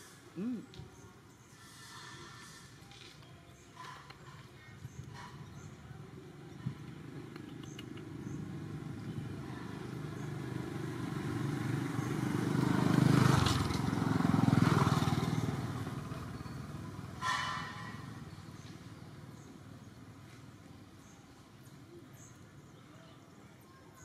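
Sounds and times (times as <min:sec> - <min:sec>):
motor vehicle passing: 0:05.1 - 0:20.6.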